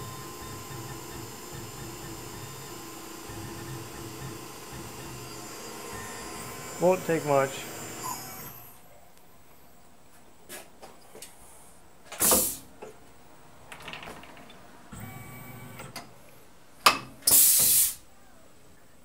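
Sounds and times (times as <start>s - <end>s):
compressed air hiss: 12.2s - 12.7s, 17.2s - 18.0s.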